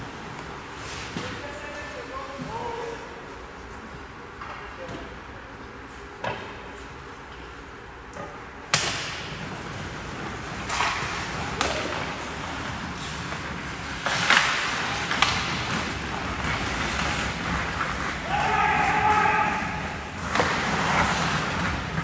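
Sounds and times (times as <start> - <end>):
stick hitting puck: 8.7 - 9.5, 10.5 - 22.0
skate blades scraping ice: 9.4 - 22.0.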